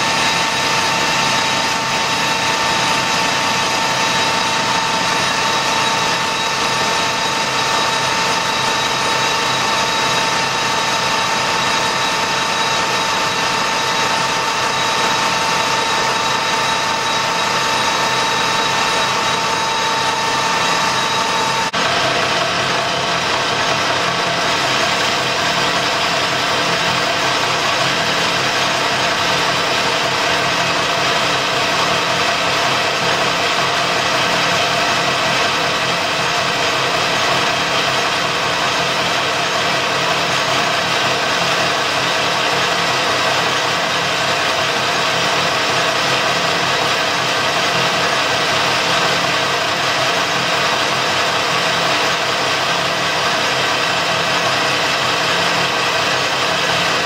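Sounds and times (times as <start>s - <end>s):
machine hum and whine: 0.0s - 57.0s
metal lathe running: 0.0s - 57.0s.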